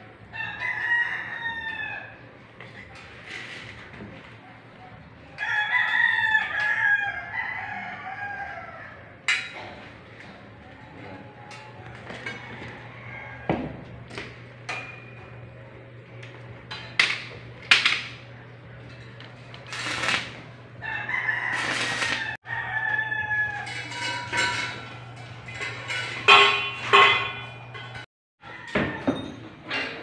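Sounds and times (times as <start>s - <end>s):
rooster crowing: 0.3s - 2.3s, 5.4s - 9.2s, 12.1s - 13.8s, 20.8s - 23.9s, 28.4s - 29.2s.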